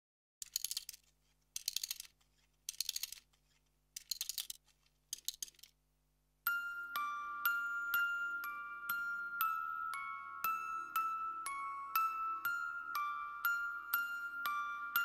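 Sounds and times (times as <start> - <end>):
rapid crisp clicking: 0.4 - 5.8.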